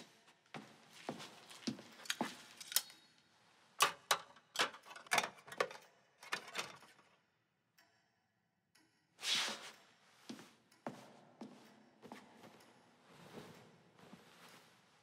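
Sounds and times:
metal tools clicking on tray: 3.8s - 7.0s.

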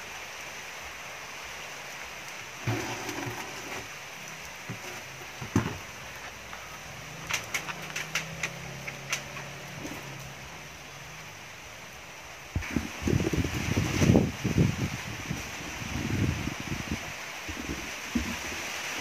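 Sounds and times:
plastic pieces clicking: 7.2s - 9.5s.

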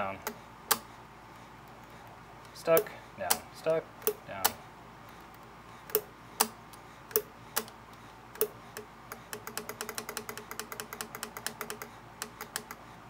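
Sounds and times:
sewing machine mechanism clicking: 8.4s - 12.8s.

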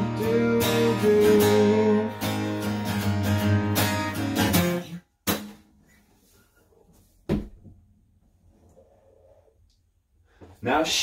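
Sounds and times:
acoustic guitar strumming: 0.0s - 5.6s.

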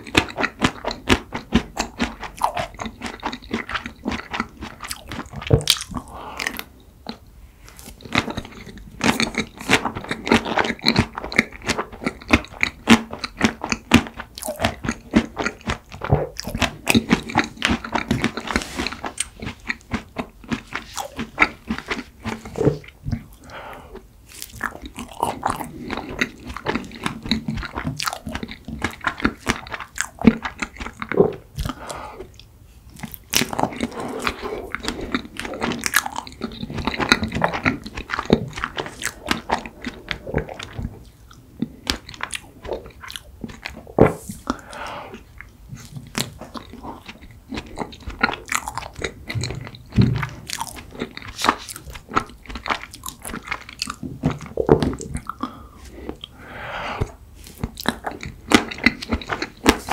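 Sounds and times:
chewing and crunching: 0.0s - 59.9s.

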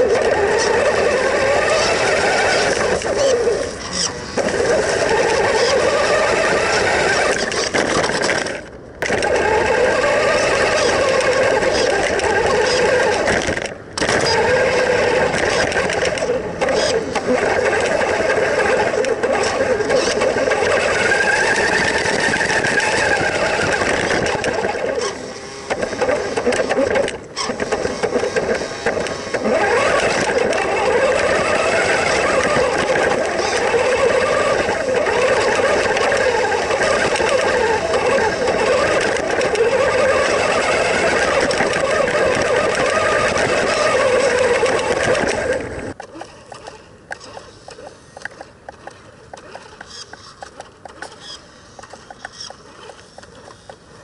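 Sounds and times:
electric motor and gearbox whining: 0.0s - 54.0s
wheels on dirt and gravel: 0.0s - 54.0s.

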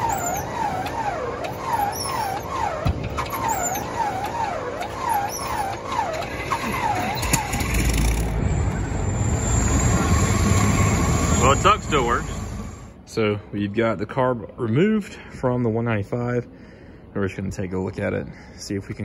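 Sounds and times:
engine starter whine cranking: 0.0s - 12.9s.

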